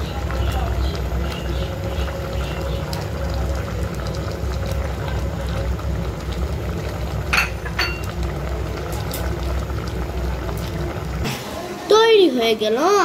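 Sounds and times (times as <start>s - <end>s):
soup bubbling in a pot: 0.0s - 12.6s.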